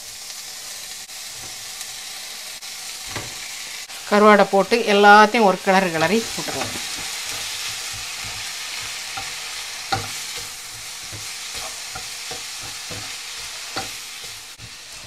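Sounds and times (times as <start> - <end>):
food sizzling in a frying pan: 0.0 - 15.0
wooden spatula scraping: 5.9 - 15.0
spatula knocking against pan: 6.6 - 14.0.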